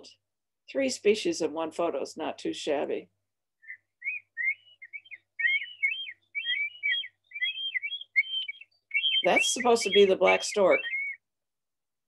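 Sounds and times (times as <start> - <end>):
recorded bird chirping whistles: 3.6 - 11.2.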